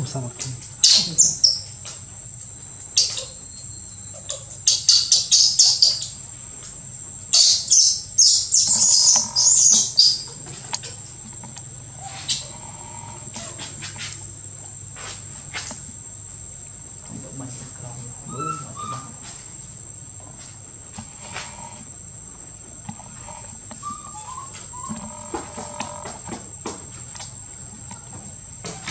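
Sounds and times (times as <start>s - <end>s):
insects droning: 0.0s - 28.9s
small birds chirping: 0.1s - 2.0s, 2.6s - 6.4s, 7.1s - 13.5s, 16.9s - 19.3s.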